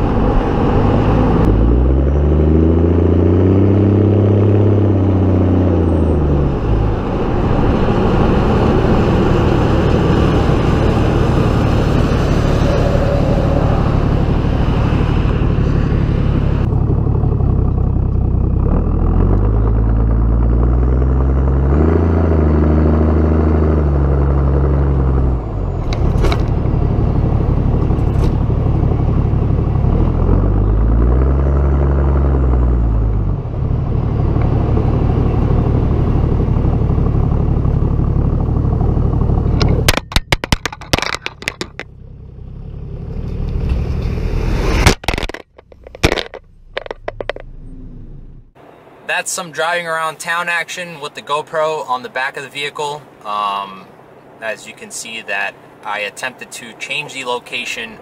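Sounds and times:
diesel engine exhaust note: 0:00.0 - 0:40.0.

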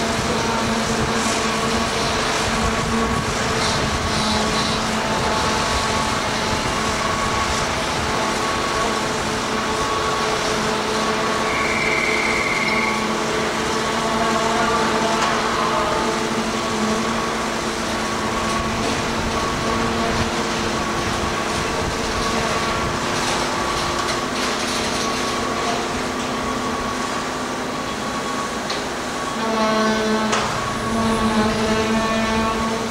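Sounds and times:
crane engine humming: 0:00.0 - 0:32.9
short high beep: 0:11.5 - 0:13.1.

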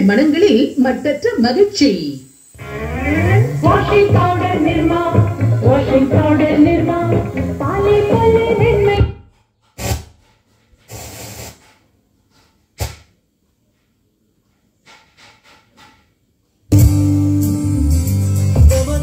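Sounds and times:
loud radio music: 0:00.0 - 0:09.2, 0:16.8 - 0:19.0
radio music: 0:00.0 - 0:09.2
radio tuning noise: 0:00.0 - 0:09.2.

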